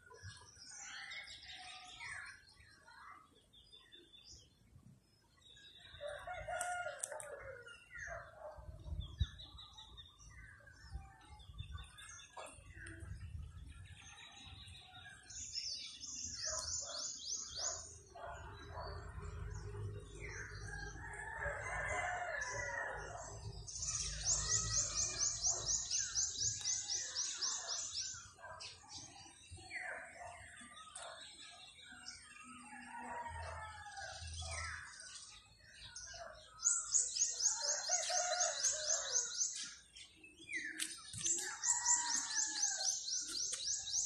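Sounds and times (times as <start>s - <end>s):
small birds trilling: 0.0s - 44.0s
rooster crowing: 20.7s - 23.2s.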